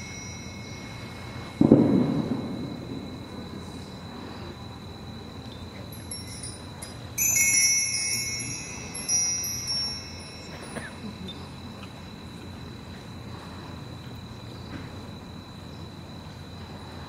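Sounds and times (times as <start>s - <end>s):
small metal chimes ringing: 0.0s - 4.2s, 5.3s - 12.1s.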